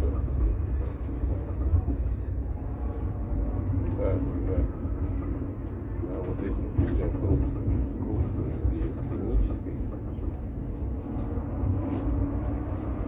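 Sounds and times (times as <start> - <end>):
tram wheels rumbling on rails: 0.0 - 13.0.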